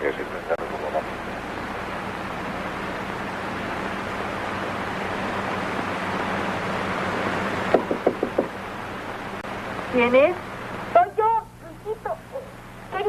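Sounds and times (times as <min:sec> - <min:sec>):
steady hiss: 0:00.0 - 0:13.0
knocks on a door: 0:07.7 - 0:08.6.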